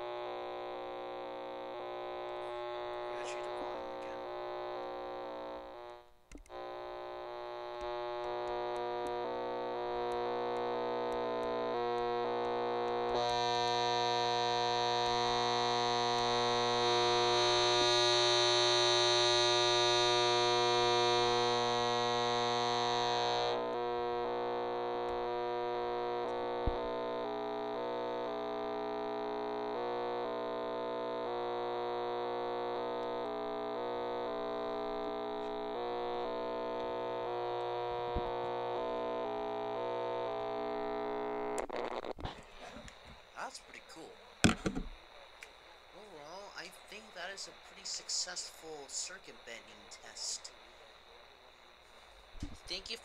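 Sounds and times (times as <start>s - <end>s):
distorted synth-like radio buzz: 0.0s - 53.0s
sharp click: 6.3s - 6.6s.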